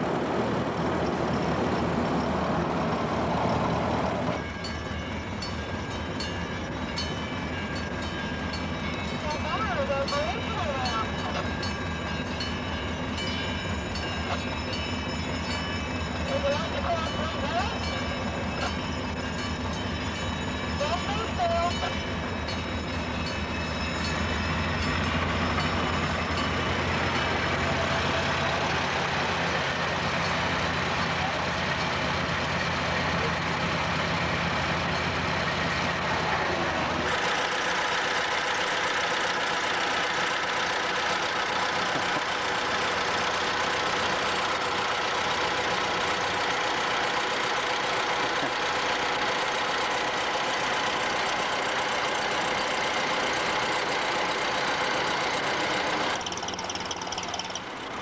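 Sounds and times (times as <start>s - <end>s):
car engine idling: 37.1s - 58.0s.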